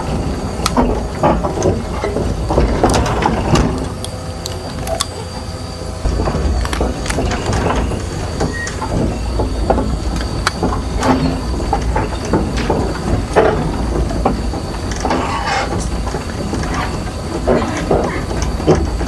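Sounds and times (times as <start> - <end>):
diesel engine rumble: 0.0 - 19.0
track links clanking: 0.0 - 19.0.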